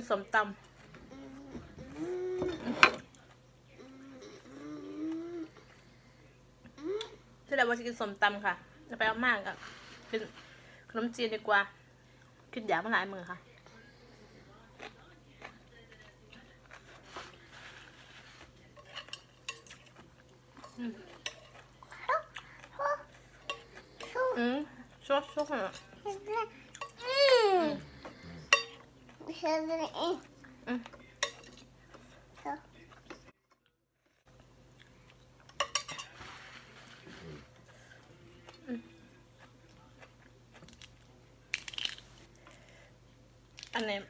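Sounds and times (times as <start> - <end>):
cutlery scraping a plate: 2.4 - 3.1, 16.8 - 20.0, 20.6 - 21.7, 28.0 - 28.9, 31.2 - 32.0, 35.5 - 37.5.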